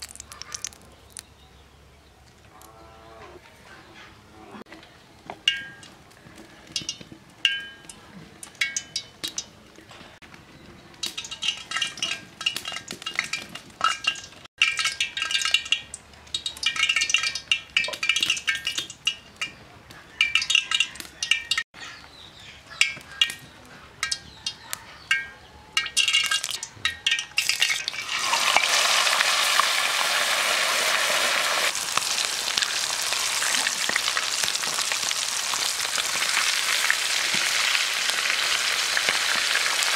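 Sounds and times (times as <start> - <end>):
chicken sizzling in hot oil: 11.0 - 19.0, 25.9 - 39.9.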